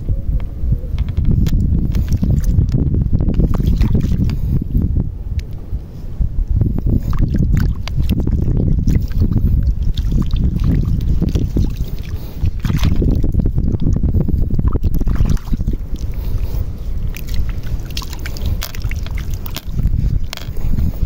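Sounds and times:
wind buffeting microphone: 0:00.0 - 0:21.0
hand sloshing through mud and water: 0:01.8 - 0:04.4, 0:06.8 - 0:20.9.

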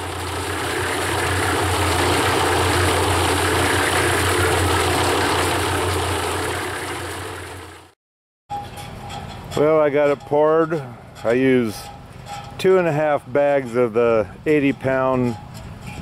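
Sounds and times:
cement mixer churning concrete: 0:00.0 - 0:07.9.

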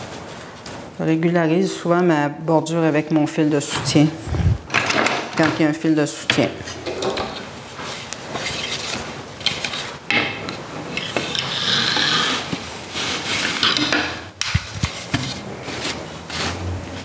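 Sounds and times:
rag strips scraping through threads: 0:10.9 - 0:14.1.

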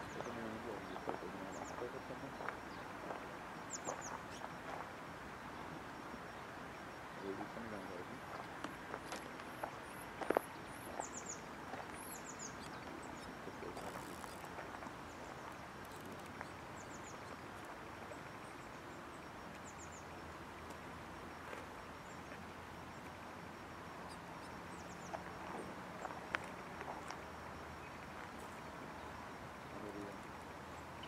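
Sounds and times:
small bird chirping: 0:00.0 - 0:03.0, 0:03.6 - 0:04.8, 0:07.1 - 0:20.2, 0:24.0 - 0:29.2
outdoor background noise: 0:00.0 - 0:31.0.

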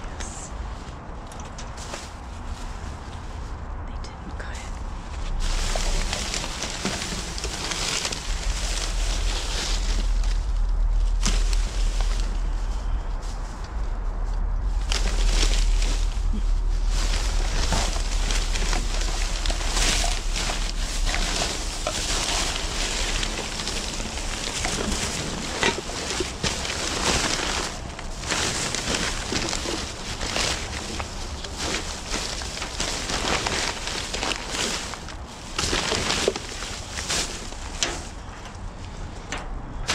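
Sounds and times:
low rumble: 0:00.0 - 0:34.2
plastic bags crinkling: 0:05.3 - 0:13.0, 0:14.7 - 0:38.7.

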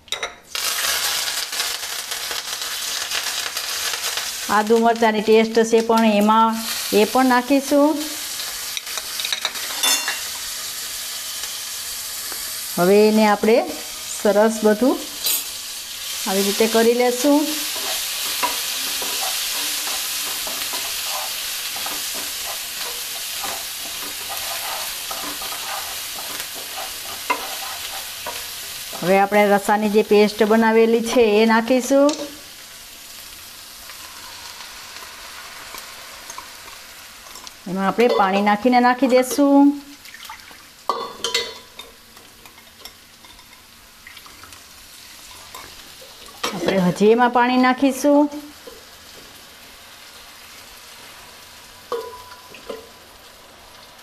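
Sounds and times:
spices sizzling in hot oil: 0:00.1 - 0:54.0
utensils clinking: 0:09.0 - 0:10.2
wooden spatula scraping pan: 0:17.6 - 0:29.1.

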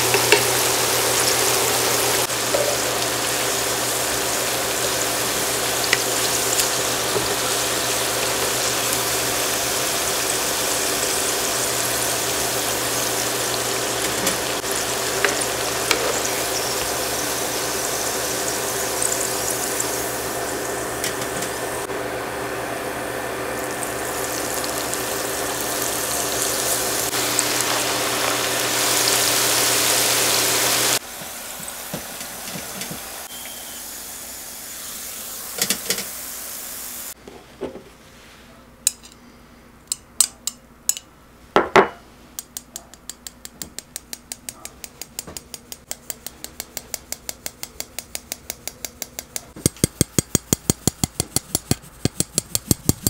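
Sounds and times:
hot oil sizzling: 0:00.0 - 0:37.2.

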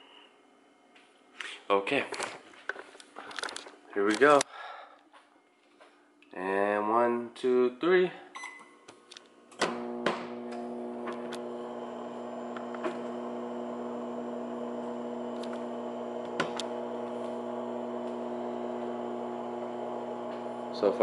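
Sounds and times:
microwave oven clicks: 0:09.6 - 0:11.4, 0:16.2 - 0:16.8
microwave oven humming: 0:09.6 - 0:21.0.

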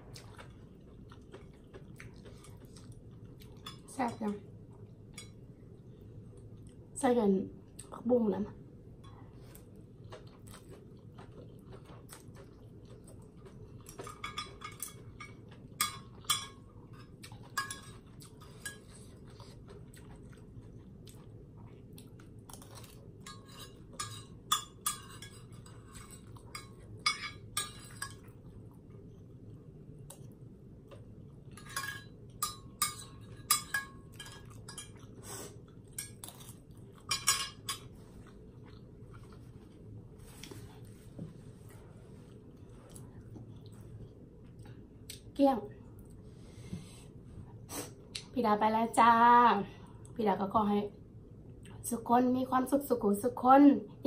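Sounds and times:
quiet chewing: 0:00.1 - 0:03.9, 0:09.1 - 0:24.0, 0:34.2 - 0:45.3
metal spoon clinking on plate: 0:31.6 - 0:35.0, 0:37.1 - 0:37.9.

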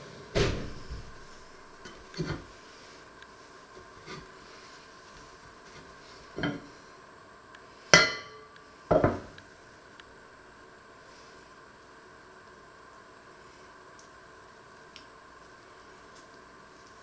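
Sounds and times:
metal pot clanking: 0:08.0 - 0:08.4
dishes knocking on wooden worktop: 0:08.9 - 0:09.3.

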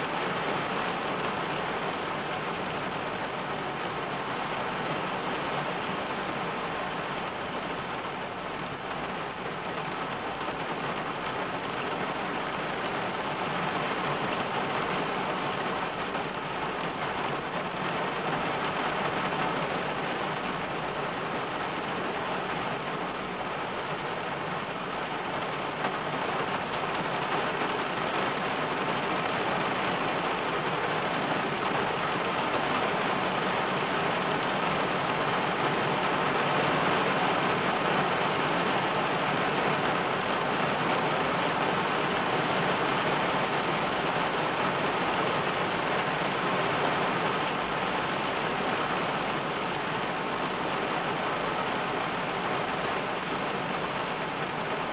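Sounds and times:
rain on a car roof: 0:00.0 - 0:54.9.

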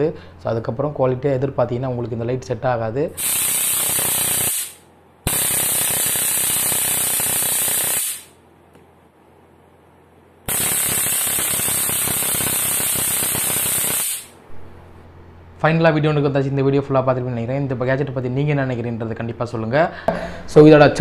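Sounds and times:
stun gun electric crackle: 0:03.2 - 0:08.4, 0:10.5 - 0:14.4.

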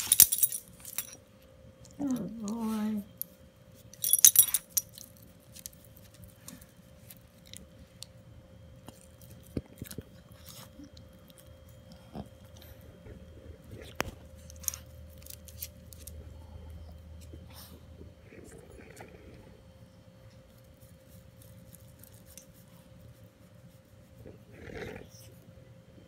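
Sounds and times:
dog collar tags jingling: 0:00.0 - 0:01.2, 0:03.9 - 0:05.2.

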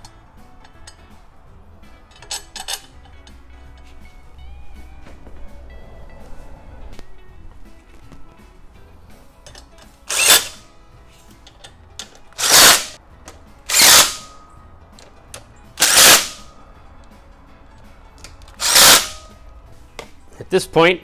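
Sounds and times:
impact driver bursts: 0:10.1 - 0:10.6, 0:12.4 - 0:13.0, 0:13.7 - 0:14.3, 0:15.8 - 0:16.4, 0:18.6 - 0:19.3.

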